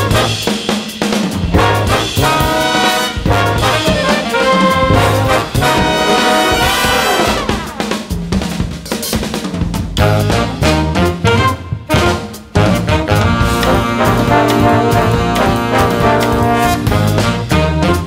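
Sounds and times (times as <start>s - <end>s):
jazz big band playing: 0.0s - 18.0s
horns sliding downward: 1.6s - 7.8s.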